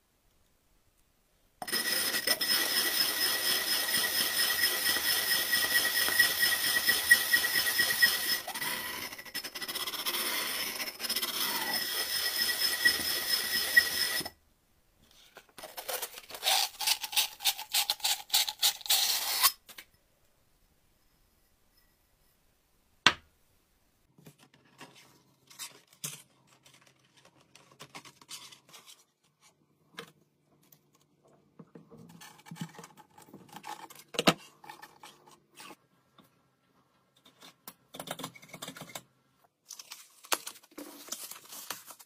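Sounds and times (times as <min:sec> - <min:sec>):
glass grinding on wet sandpaper: 0:01.7 - 0:14.3.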